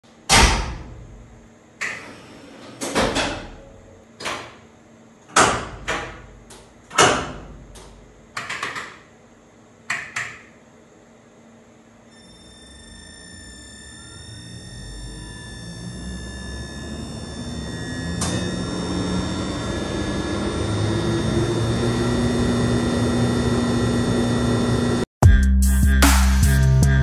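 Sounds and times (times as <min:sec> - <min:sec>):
steady high whine: 0:12.0 - 0:25.1.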